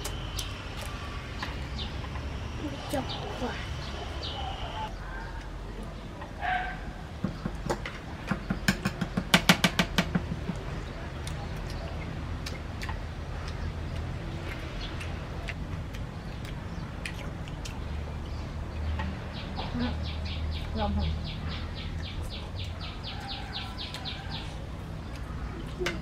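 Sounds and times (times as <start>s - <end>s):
chewing and eating clicks: 10.5s - 19.1s, 25.0s - 26.0s.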